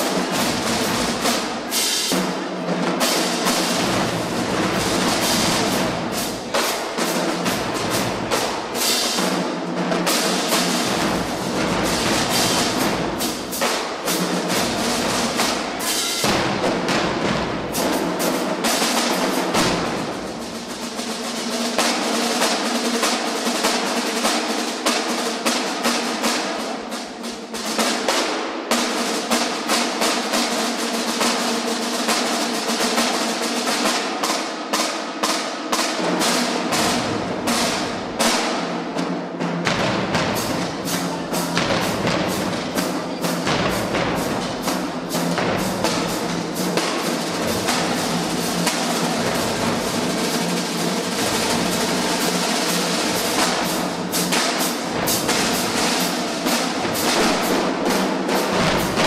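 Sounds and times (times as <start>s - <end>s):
snare drums: 0.0s - 59.0s
tenor drums: 0.0s - 59.0s
bass drums: 56.8s - 59.0s.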